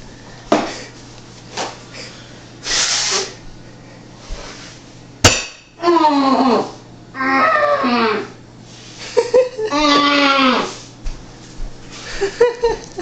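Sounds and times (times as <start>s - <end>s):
person's falling vocal sound: 5.8s - 8.4s, 9.7s - 10.8s.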